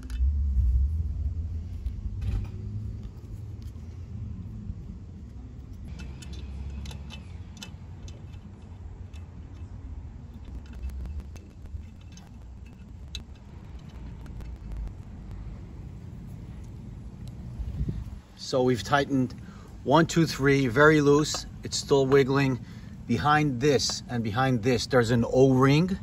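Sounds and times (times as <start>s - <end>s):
low background rumble: 0.0s - 26.0s
light metallic clicks and taps: 5.7s - 15.0s.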